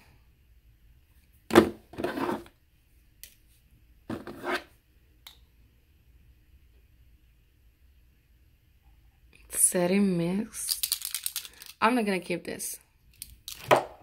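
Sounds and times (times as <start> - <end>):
plastic tubes and jars clattering: 10.7 - 11.8, 13.2 - 13.8.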